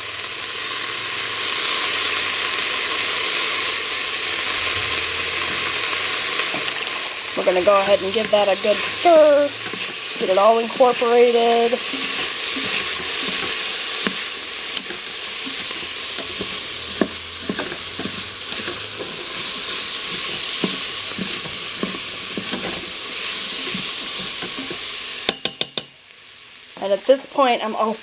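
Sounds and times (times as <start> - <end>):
vegetables sizzling in hot oil: 0.0 - 28.0.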